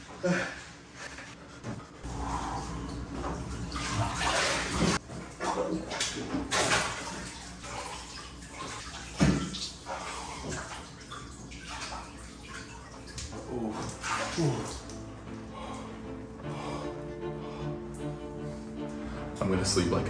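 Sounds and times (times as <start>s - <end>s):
water sloshing in bathtub: 0.0s - 16.0s
loud water splash: 3.7s - 15.0s.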